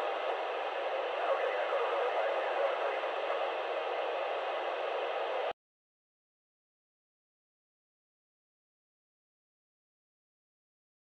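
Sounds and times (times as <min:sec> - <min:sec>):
radio static hiss: 0:00.0 - 0:05.5.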